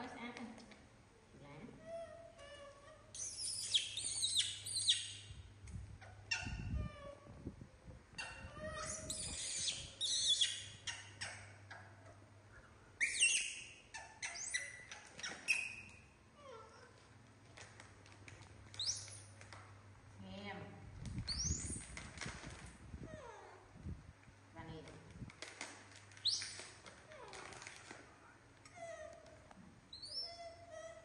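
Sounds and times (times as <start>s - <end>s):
monkeys squealing and chirping: 2.0s - 5.2s, 8.2s - 11.9s, 13.0s - 16.0s, 29.9s - 31.0s.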